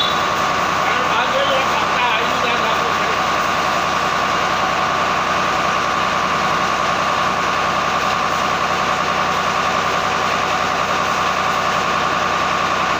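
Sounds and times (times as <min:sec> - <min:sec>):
steady whine: 0:00.0 - 0:06.6
tractor engine running: 0:00.0 - 0:12.9.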